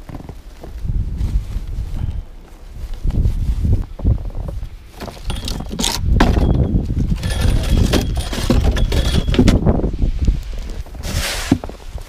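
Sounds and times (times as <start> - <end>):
footsteps crunching in snow: 0.0 - 5.3
low rumble on microphone: 0.0 - 12.0
snow tools clattering: 4.9 - 9.8.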